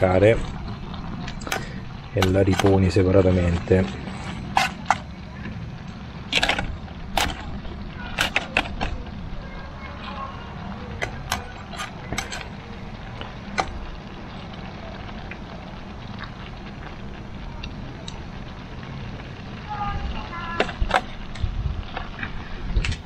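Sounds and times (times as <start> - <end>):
cooking gear clicking and clacking: 0.0 - 15.5, 20.3 - 23.0
steady low rumble: 0.0 - 23.0.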